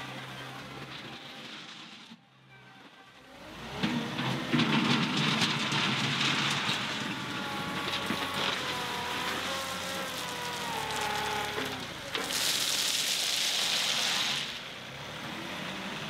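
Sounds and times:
diesel tractor working: 0.0s - 16.0s
gravel pouring from bucket: 4.3s - 14.7s.

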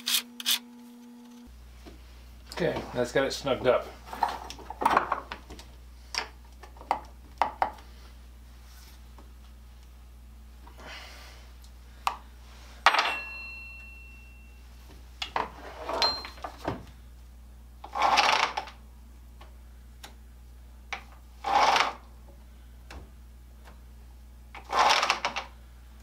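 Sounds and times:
low steady hum: 0.0s - 26.0s
metal rasping scrapes: 21.4s - 22.0s.

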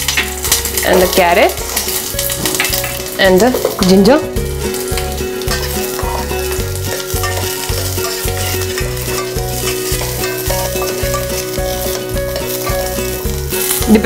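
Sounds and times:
instrumental background music: 0.0s - 14.0s
vegetables sizzling in oil: 0.0s - 14.0s
spoon stirring in saucepan: 4.8s - 14.0s.

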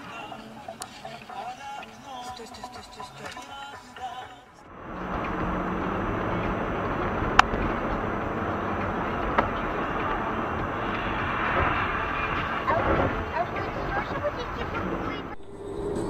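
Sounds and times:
car engine and tyre noise: 4.6s - 16.0s.

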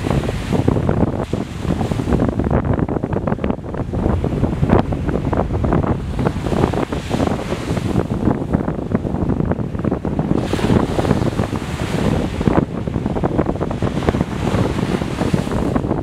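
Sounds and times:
small waves breaking on sand: 0.0s - 2.4s, 9.2s - 16.0s
wind buffeting microphone: 0.0s - 16.0s.

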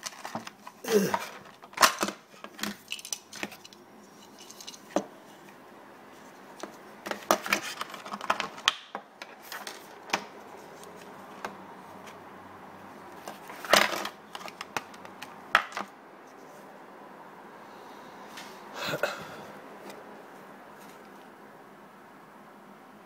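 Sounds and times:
plastic packaging crackling: 0.0s - 3.8s, 7.1s - 11.2s.

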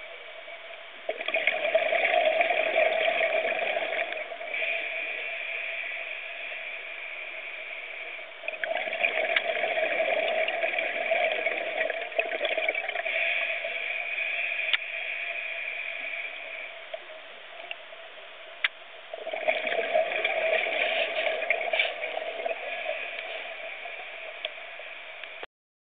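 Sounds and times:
steady hum: 0.0s - 25.5s
regulator bubbles gurgling underwater: 1.0s - 5.3s, 8.4s - 14.8s, 19.0s - 25.4s.

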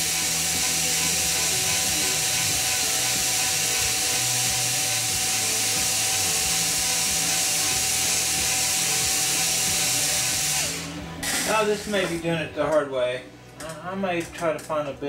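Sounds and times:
cordless drill running: 0.0s - 11.8s.

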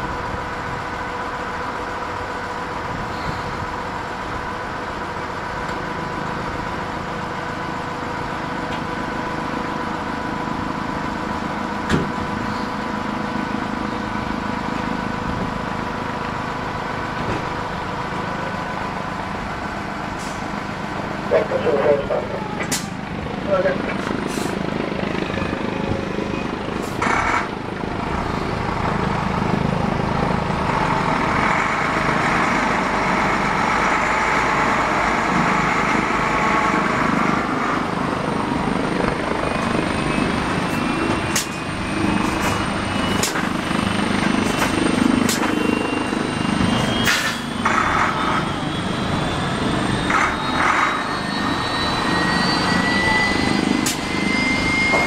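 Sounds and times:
helicopter rotor and turbine: 0.0s - 55.0s
rising whine: 28.0s - 55.0s.

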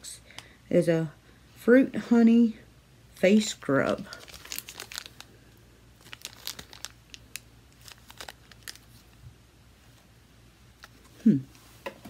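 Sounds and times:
plastic bag crinkling: 3.4s - 9.3s.

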